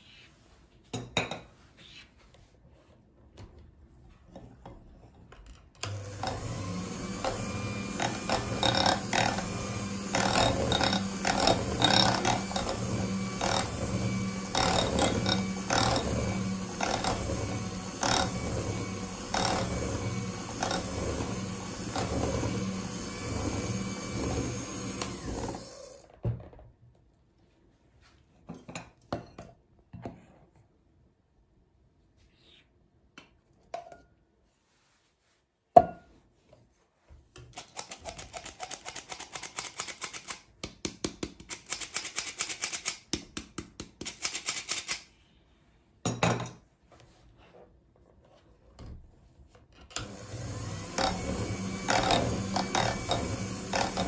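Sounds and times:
electric hand mixer motor: 5.8 - 26.1, 50.0 - 54.0
beaters clicking and knocking on bowl: 7.1 - 25.8, 49.9 - 54.0.

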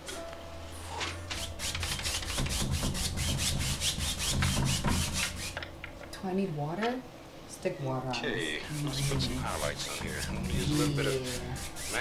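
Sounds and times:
paint brush scratchy strokes: 8.5 - 12.0.

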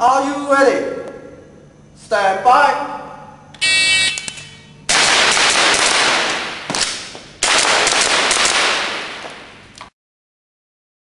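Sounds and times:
shot timer beep: 3.6 - 4.8
airsoft pistol firing: 4.9 - 9.6.

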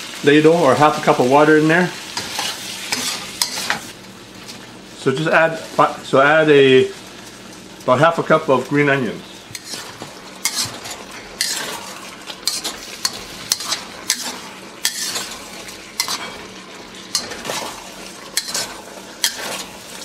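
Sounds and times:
food sizzling in a wok: 0.0 - 20.0
metal spatula scraping a wok: 2.2 - 3.9, 9.5 - 20.0.

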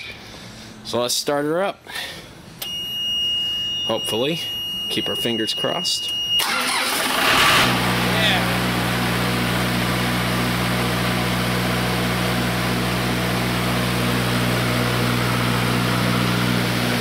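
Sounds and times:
diesel generator engine running: 6.1 - 17.0.

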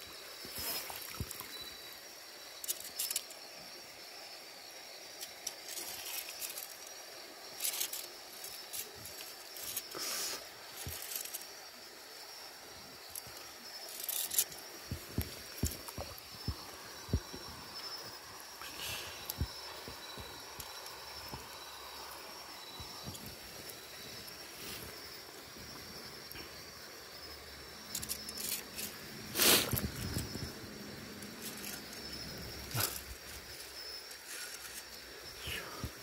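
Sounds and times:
steady high hiss: 0.0 - 36.0
water splashing and trickling: 0.4 - 1.9.

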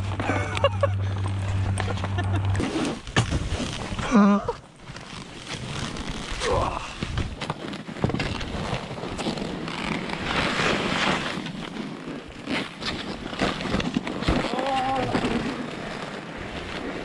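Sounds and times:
skis and poles knocking: 0.0 - 16.2
skis hissing through snow: 8.5 - 14.2.

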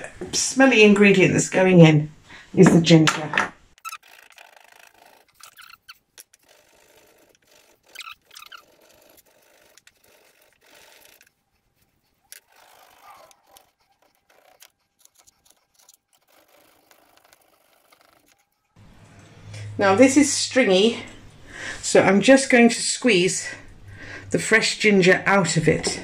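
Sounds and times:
knife scraping ginger on board: 3.8 - 18.7
ginger rubbed on ceramic grater: 3.8 - 18.8.

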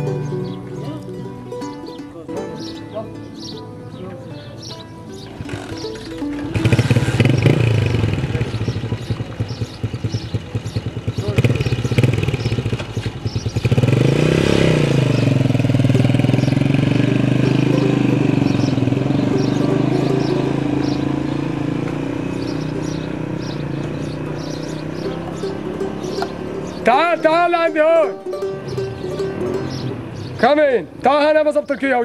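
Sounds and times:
small motorcycle engine: 5.1 - 30.5.

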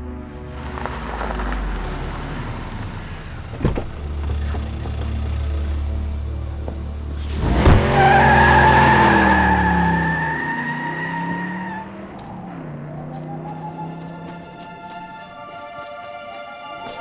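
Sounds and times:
car engine revving: 0.6 - 15.2
tyre squeal: 7.8 - 14.5.

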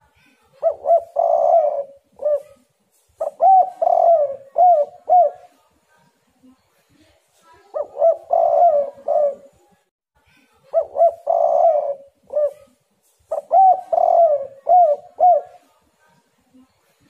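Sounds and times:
dove cooing: 0.6 - 5.6, 7.7 - 9.6, 10.7 - 15.7.

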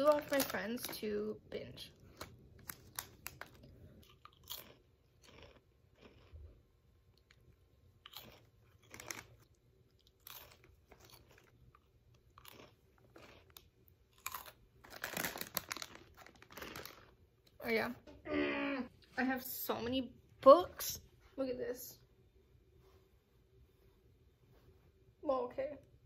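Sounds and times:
person chewing crunchy snack: 2.0 - 17.2.

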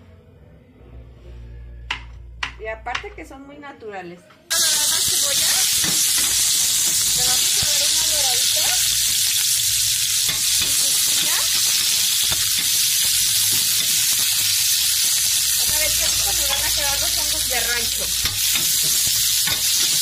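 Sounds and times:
spoon knocking against pan: 1.9 - 3.1
onions sizzling in oil: 4.5 - 20.0.

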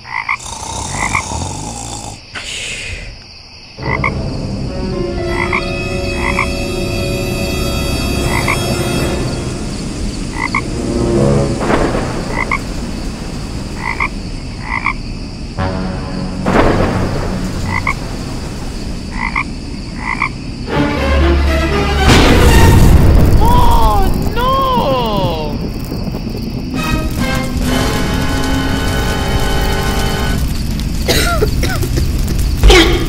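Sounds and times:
background hiss: 0.0 - 21.0, 21.6 - 33.0
frogs croaking: 0.0 - 21.0.

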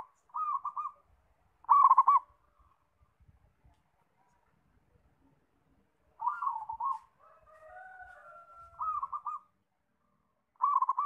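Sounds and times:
dove cooing: 0.0 - 1.0, 1.6 - 2.3, 6.2 - 7.2, 8.6 - 9.5, 10.6 - 11.0.

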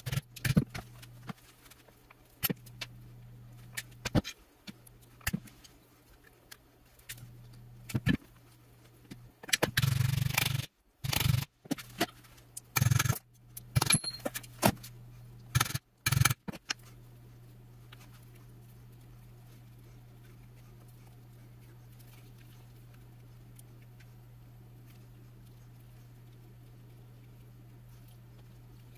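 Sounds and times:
faint steady hum: 0.0 - 28.9
metal tools clattering and scraping: 13.8 - 14.5.

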